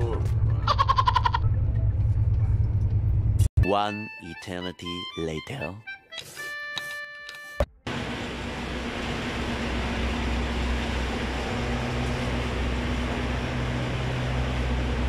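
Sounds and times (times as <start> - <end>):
idling machinery drone: 0.0 - 3.5, 7.9 - 15.0
low hum: 0.0 - 3.5, 7.9 - 15.0.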